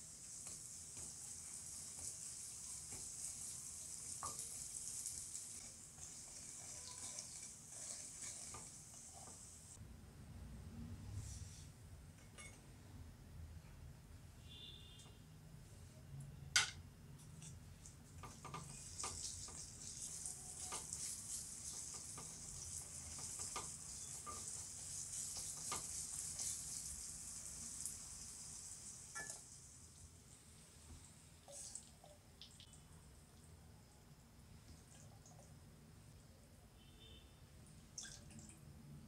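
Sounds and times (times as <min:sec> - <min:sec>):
banana slices sizzling in ghee: 0:00.0 - 0:09.8, 0:17.3 - 0:31.0
wooden spatula scraping a pan: 0:05.4 - 0:09.6, 0:18.2 - 0:26.8.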